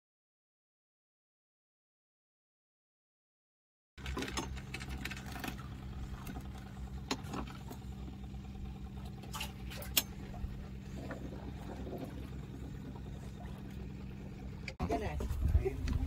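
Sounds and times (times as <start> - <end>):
boat engine running: 4.0 - 16.0.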